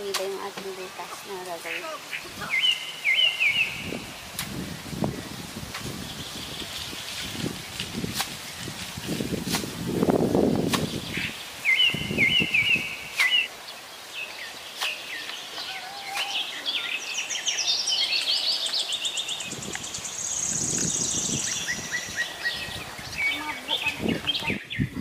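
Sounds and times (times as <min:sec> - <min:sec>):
blade striking soil: 0:00.0 - 0:00.7, 0:07.2 - 0:11.1, 0:14.8 - 0:15.4
birds chirping and singing: 0:00.0 - 0:25.0
high bird trill: 0:14.4 - 0:25.0.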